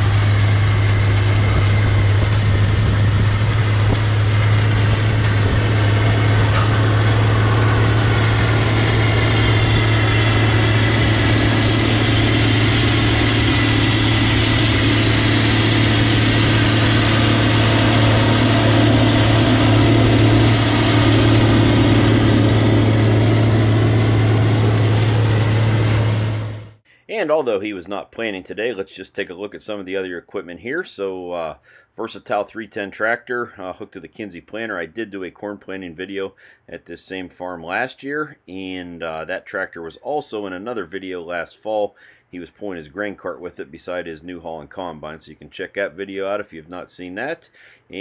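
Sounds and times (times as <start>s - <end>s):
steady mechanical hum: 0.0s - 26.8s.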